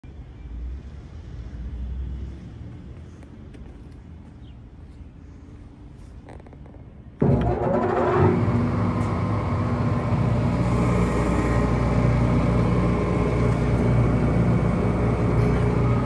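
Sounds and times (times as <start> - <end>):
machine motor whine and hum: 7.2 - 16.0.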